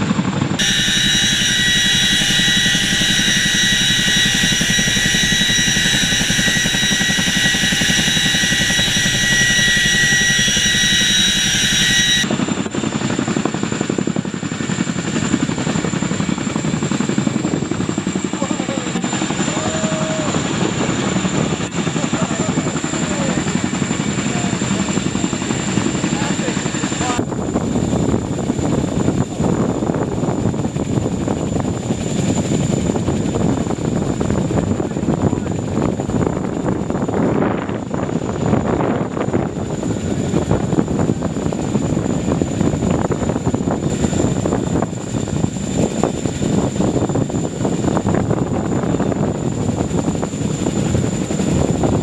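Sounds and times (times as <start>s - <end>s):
helicopter rotor beat: 0.0s - 52.0s
helicopter turbine whine: 0.0s - 52.0s
rushing noise: 0.6s - 12.4s.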